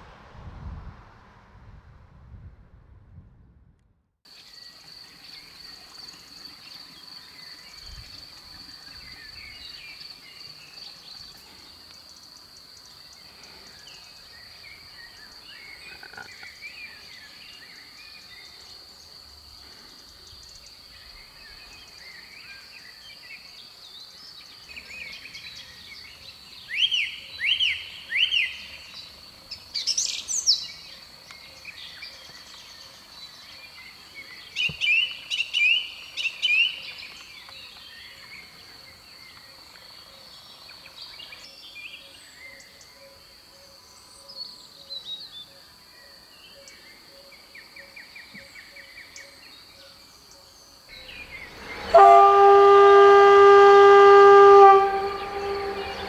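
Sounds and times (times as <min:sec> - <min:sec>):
crickets trilling: 0:04.3 - 0:56.0
frogs croaking: 0:15.2 - 0:17.2
birds chirping and singing: 0:54.5 - 0:56.0.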